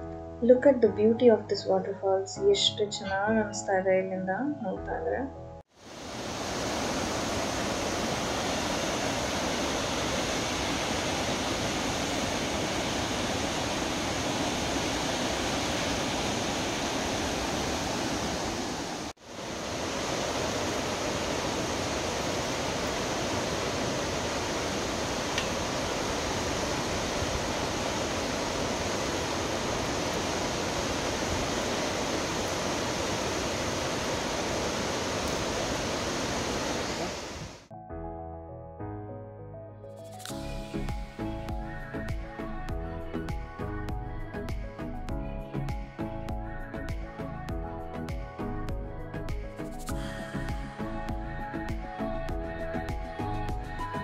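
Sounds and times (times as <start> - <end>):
waterfall roaring: 5.8 - 37.7.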